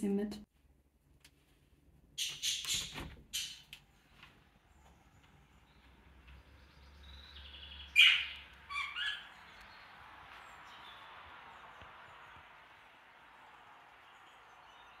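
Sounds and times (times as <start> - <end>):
budgerigars calling: 7.1 - 9.6.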